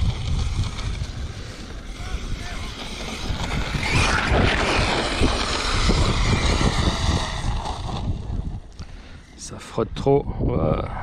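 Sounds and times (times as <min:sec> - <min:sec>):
electric rc car motor under throttle: 0:00.0 - 0:09.4
wind buffeting microphone: 0:00.0 - 0:11.0.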